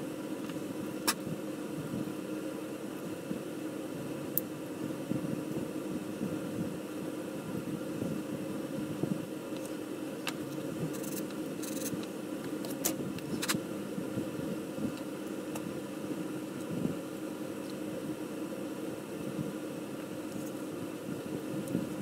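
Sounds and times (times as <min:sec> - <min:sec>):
steady background hum: 0:00.0 - 0:22.0.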